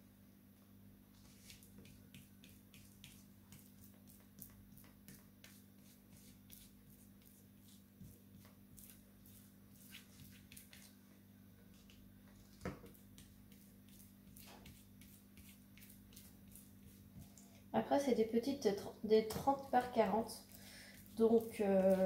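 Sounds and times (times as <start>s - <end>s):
paintbrush dabbing ticking: 1.5s - 10.9s, 12.9s - 17.4s, 19.5s - 22.0s.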